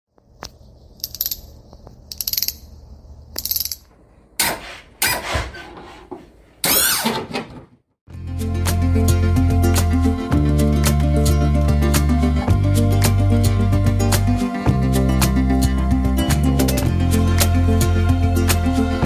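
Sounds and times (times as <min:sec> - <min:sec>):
music with steady beat: 0:08.1 - 0:19.0.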